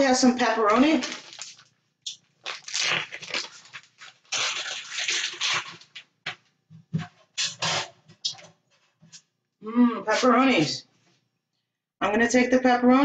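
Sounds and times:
plastic package rustling: 0:00.4 - 0:06.3.

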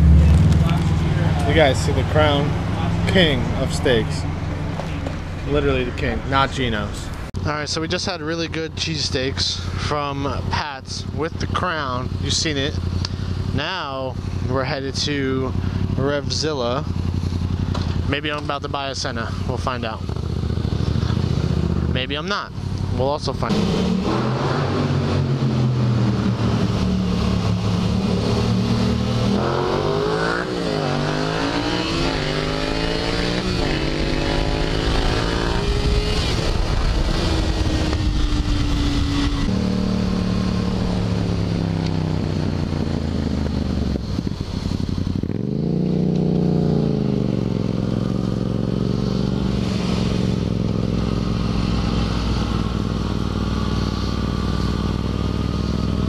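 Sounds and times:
motorcycle engine accelerating: 0:00.0 - 0:56.0
wind rushing over microphone: 0:33.4 - 0:45.8.

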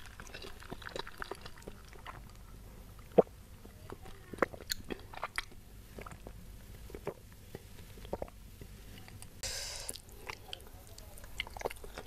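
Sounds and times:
short hissing rush: 0:09.4 - 0:10.0.

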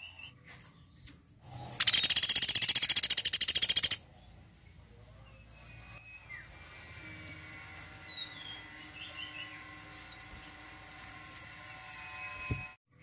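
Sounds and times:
woodpecker squeaky calls: 0:01.6 - 0:04.0.

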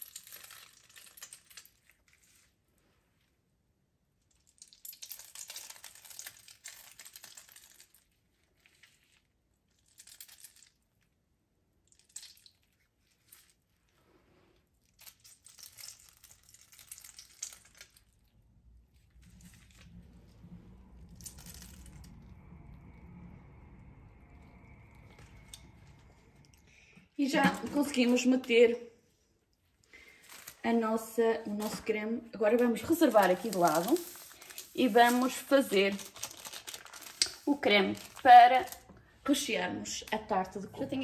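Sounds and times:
plastic bag crinkling: 0:00.0 - 0:02.6, 0:04.7 - 0:11.0, 0:14.7 - 0:23.3, 0:29.7 - 0:39.5
low hum: 0:17.6 - 0:41.0.

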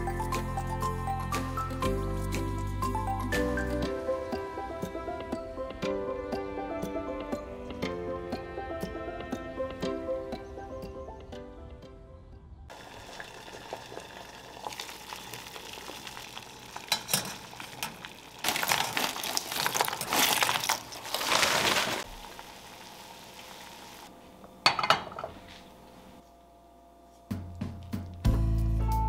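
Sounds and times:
water bubbling in saucepan: 0:12.7 - 0:21.1
plastic bag rustling: 0:17.4 - 0:23.9.

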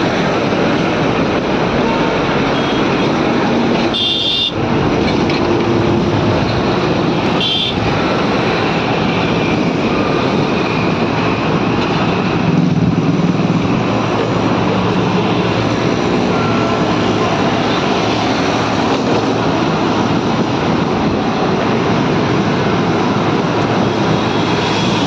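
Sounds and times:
motorbike engine drone: 0:00.0 - 0:25.0
road traffic: 0:00.0 - 0:25.0
wind on microphone: 0:04.6 - 0:25.0.

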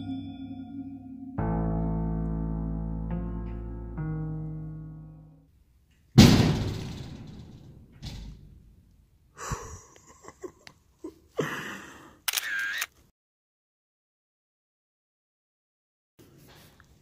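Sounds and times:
sustained music tone: 0:00.0 - 0:05.4
door slamming shut: 0:06.2 - 0:08.5.

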